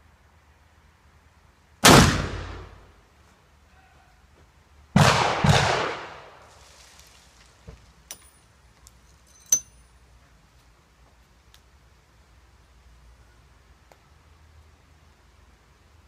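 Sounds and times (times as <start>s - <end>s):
gunshots with echo: 5.0s - 6.3s
ramrod clinking in barrel: 8.1s - 9.9s.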